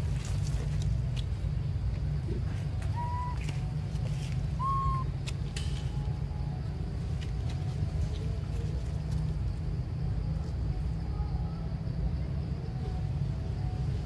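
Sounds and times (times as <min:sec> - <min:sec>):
whistled animal calls: 0:02.9 - 0:03.6, 0:04.6 - 0:05.1.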